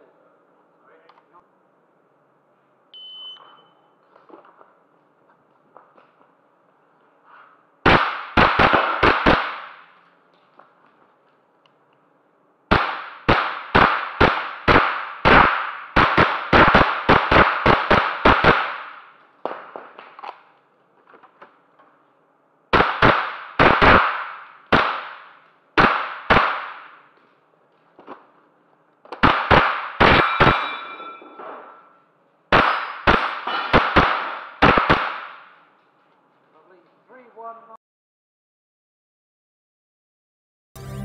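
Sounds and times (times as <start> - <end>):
rifle shots echoing: 7.8 - 10.0, 12.7 - 20.2, 32.5 - 35.6.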